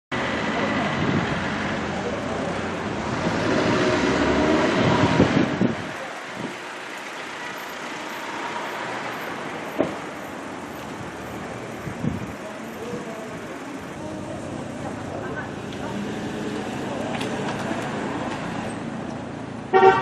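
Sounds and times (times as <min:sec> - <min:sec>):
street traffic hum: 0:00.1 - 0:20.0.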